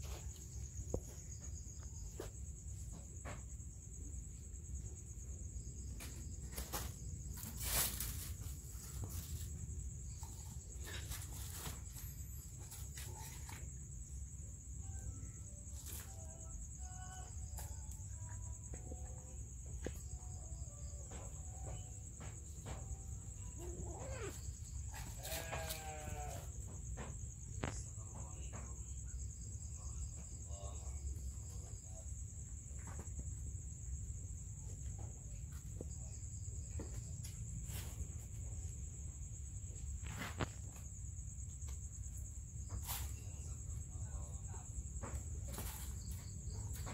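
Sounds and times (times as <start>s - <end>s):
high-pitched insect trill: 0.0s - 46.9s
cats pawing at broom bristles: 5.9s - 14.7s, 15.5s - 18.8s, 21.0s - 28.0s, 31.1s - 46.9s.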